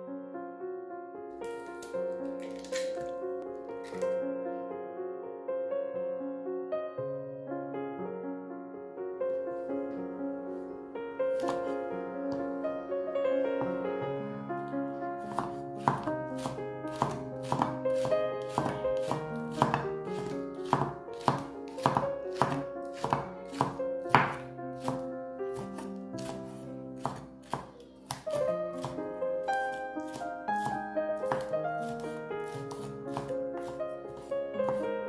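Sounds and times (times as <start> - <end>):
knife chopping on wooden board: 1.5 - 3.1, 11.4 - 11.7, 15.2 - 35.0
background music: 10.9 - 35.0.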